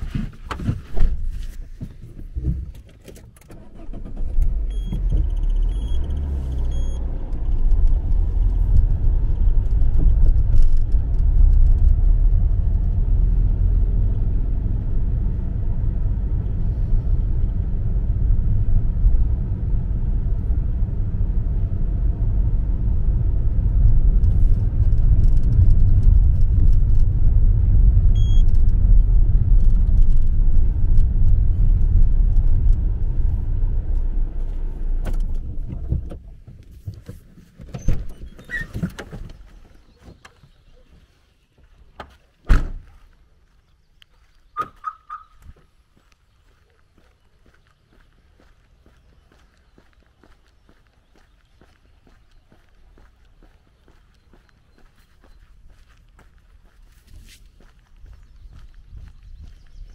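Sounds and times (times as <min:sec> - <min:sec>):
car engine and road rumble: 0:00.0 - 0:59.9
high electronic beeps: 0:04.7 - 0:07.0, 0:28.2 - 0:28.5.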